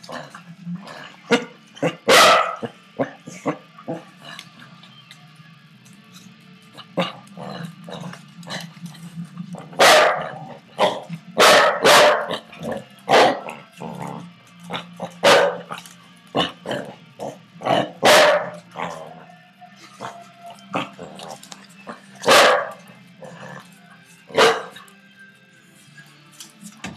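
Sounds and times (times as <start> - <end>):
low hum: 0.0 - 26.1
puppies barking: 1.3 - 4.5, 9.6 - 19.2, 20.0 - 23.7, 24.3 - 24.8
puppies yapping: 14.7 - 16.0, 18.0 - 18.9, 22.2 - 22.9, 24.3 - 24.8.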